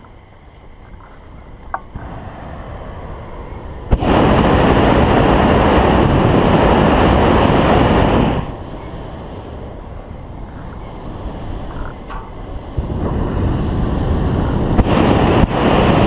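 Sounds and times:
propane burner rushing: 1.9s - 16.0s
burner valve click: 11.8s - 13.2s.

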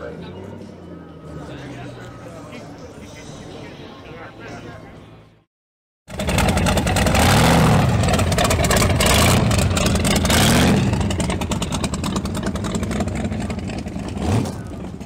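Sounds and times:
car engine revving: 6.1s - 15.0s.

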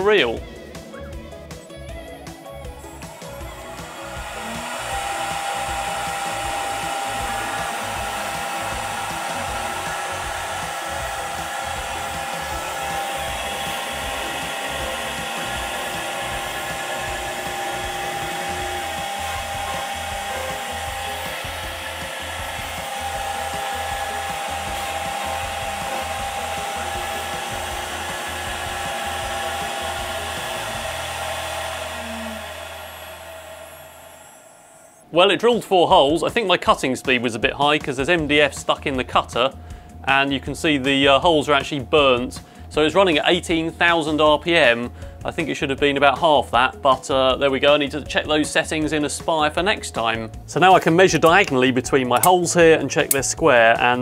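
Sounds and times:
router spindle drilling: 0.8s - 35.1s, 51.2s - 51.5s, 52.1s - 52.4s.

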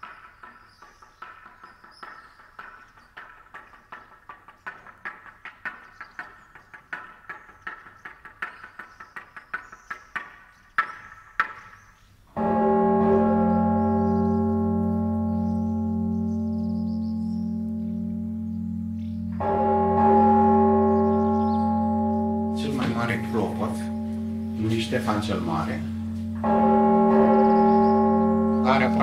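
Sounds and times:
large church bell ringing: 12.4s - 29.0s.

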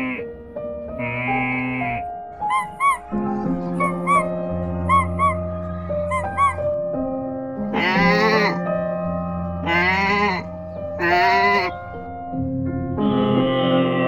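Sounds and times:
background music: 0.0s - 14.0s
sheep bleating: 1.0s - 2.0s, 7.7s - 8.6s, 9.6s - 11.8s.

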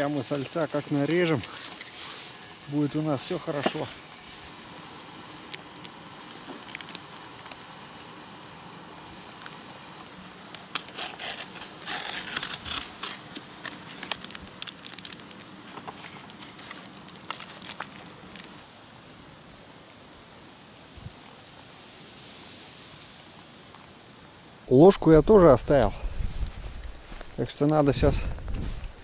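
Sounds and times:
plastic and foil cup crinkling: 0.0s - 7.8s, 9.3s - 18.6s.

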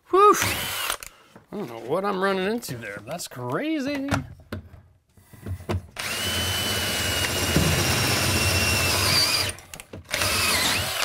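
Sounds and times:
cordless drill whining through wood: 0.4s - 1.1s, 6.0s - 11.0s.

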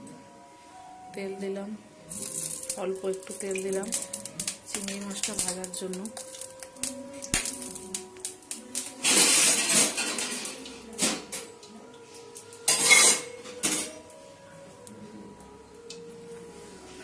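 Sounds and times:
steel cookware clattering: 8.7s - 11.4s, 12.7s - 14.0s.

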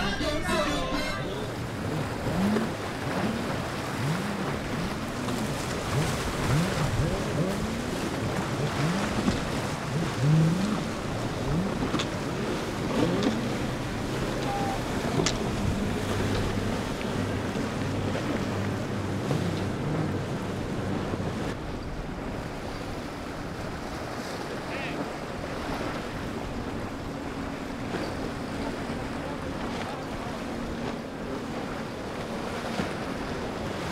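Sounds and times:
motorboat engines running: 0.0s - 33.9s.

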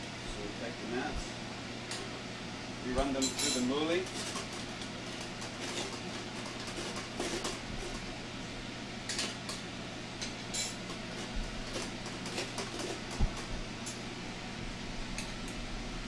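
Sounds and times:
food mill clicking and scraping: 3.8s - 8.1s, 10.8s - 13.5s.

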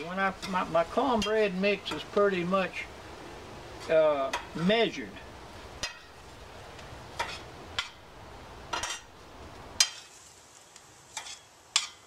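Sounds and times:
metal spoon scraping a pan: 0.0s - 2.2s, 5.8s - 6.3s, 7.1s - 8.0s, 8.7s - 9.1s, 9.8s - 10.3s, 11.1s - 12.0s
food sizzling: 0.0s - 12.0s.

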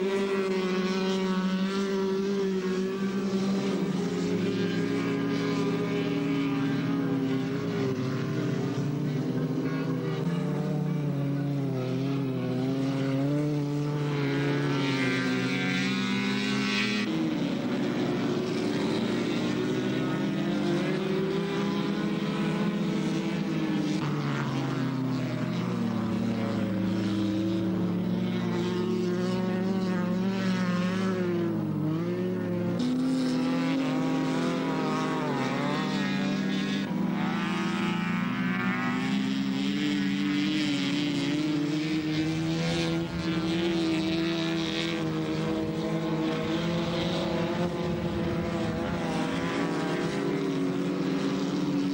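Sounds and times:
racing car engines revving: 0.0s - 51.9s.

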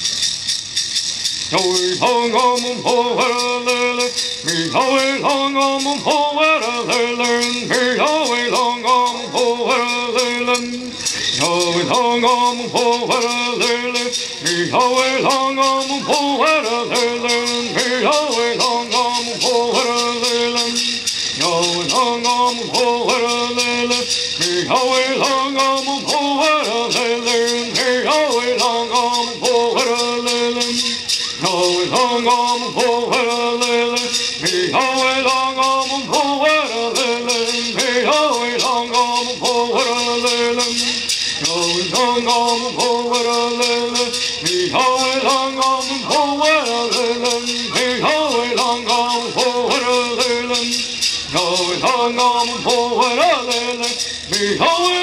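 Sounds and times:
gourd rattles shaken: 0.0s - 55.0s
men singing together: 1.5s - 55.0s.

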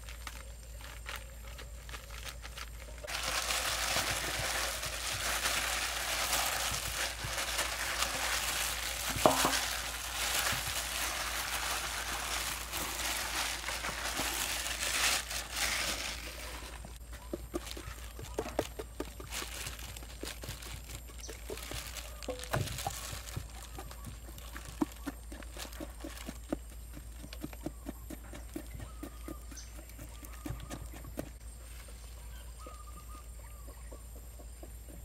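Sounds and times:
crinkling rustling of gloved hands: 0.0s - 27.6s.

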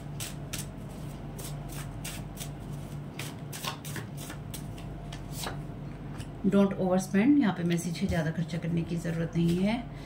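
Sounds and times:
steady low hum: 0.0s - 10.0s
cards being shuffled: 0.2s - 5.6s.

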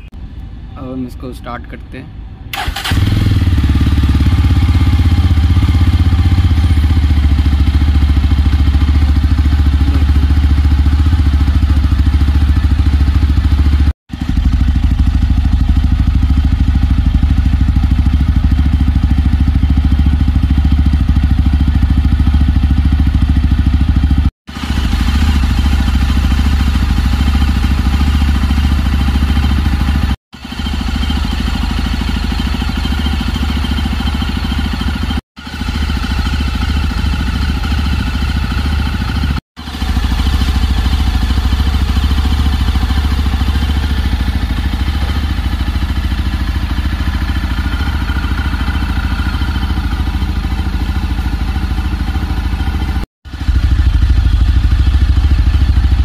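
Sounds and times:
motorcycle engine idling: 2.5s - 56.0s.

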